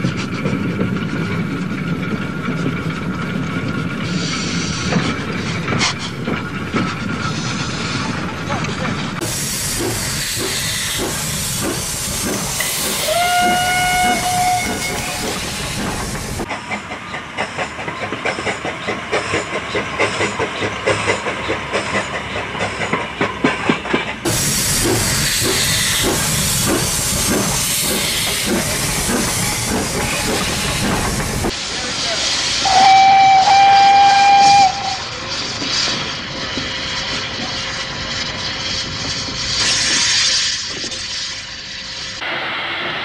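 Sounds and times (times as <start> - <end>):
steam locomotive chuffing: 0.0 - 43.0
steam hissing: 9.2 - 16.5, 24.2 - 43.0
steam whistle blast: 13.0 - 15.2, 32.6 - 35.1.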